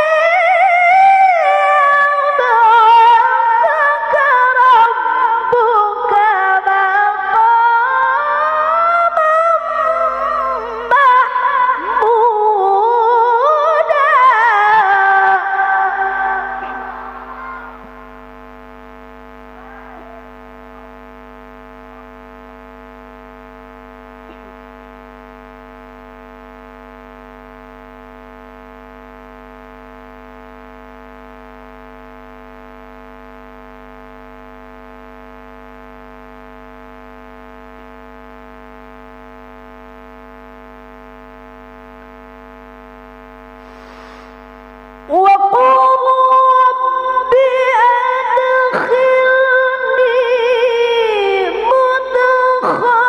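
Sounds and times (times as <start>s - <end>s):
woman reciting melodically: 0.0s - 18.1s, 45.1s - 53.0s
electrical mains hum: 0.0s - 53.0s.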